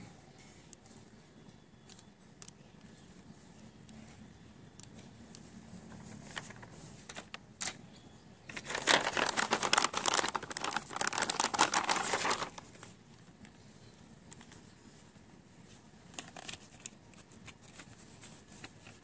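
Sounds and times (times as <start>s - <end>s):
plastic packaging crinkling: 8.5s - 13.0s.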